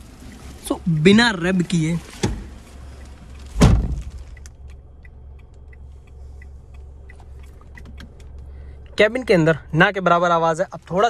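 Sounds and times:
car engine idling hum: 0.0s - 11.0s
loud thump: 3.6s - 4.2s.

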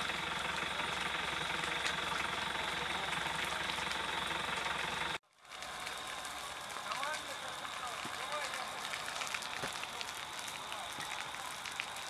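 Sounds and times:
vehicle engine idling: 0.0s - 5.2s
dry grass crackling as it burns: 0.0s - 12.0s.

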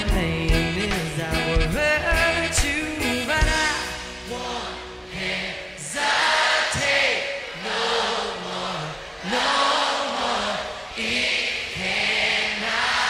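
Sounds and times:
drums: 0.0s - 4.6s
acoustic guitar: 0.0s - 5.1s
man singing: 0.0s - 10.7s
crowd cheering and singing: 0.0s - 13.0s.

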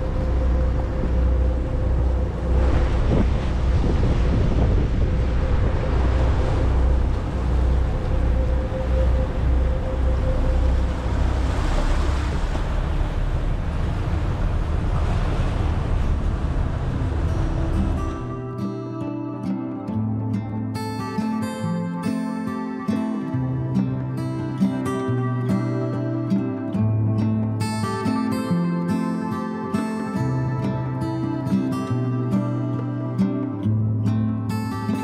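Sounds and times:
wind buffeting microphone: 0.0s - 18.4s
water rushing past hull: 0.0s - 18.6s
boat engine rumble: 0.0s - 21.1s.

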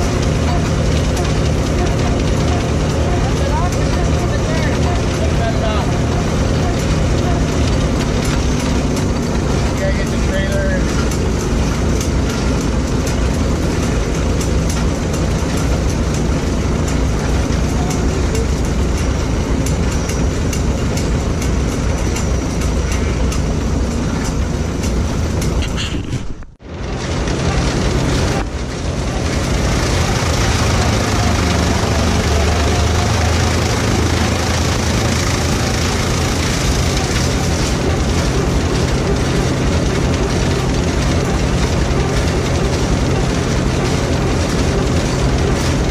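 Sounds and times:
corn chopper and blower: 0.0s - 45.9s
tractor engine running: 0.0s - 45.9s.

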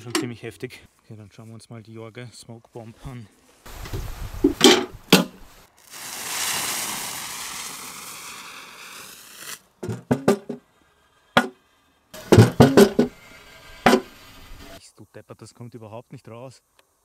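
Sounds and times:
fuse hissing: 3.7s - 9.8s.

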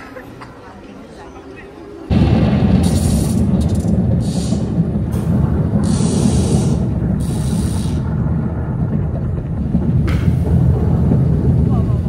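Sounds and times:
smoke jet hissing blasts: 2.1s - 8.8s
deep rumble sound effect: 2.1s - 12.0s.

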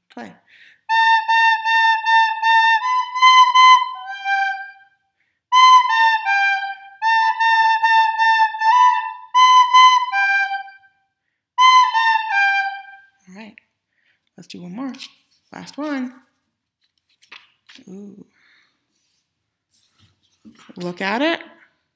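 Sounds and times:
recorder melody: 0.9s - 4.9s, 5.5s - 10.9s, 11.6s - 13.1s.

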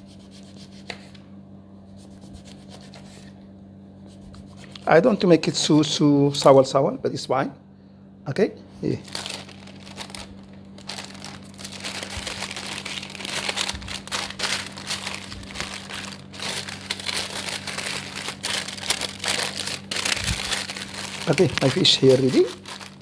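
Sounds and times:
baking paper crinkling: 9.0s - 23.0s.

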